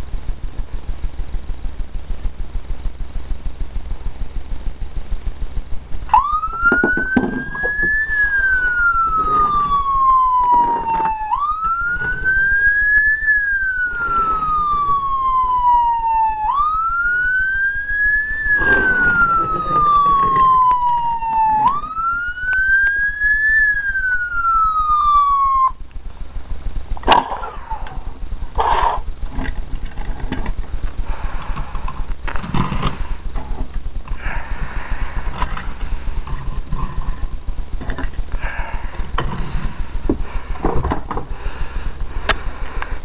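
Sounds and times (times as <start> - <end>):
low electrical hum: 0.0 - 43.0
electronic wail siren: 6.0 - 31.7
handling noise: 18.4 - 22.7.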